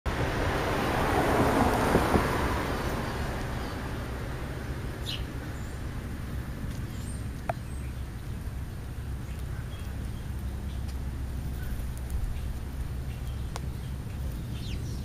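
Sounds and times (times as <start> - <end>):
low traffic rumble: 0.1 - 15.0
vehicle passing: 0.1 - 15.0.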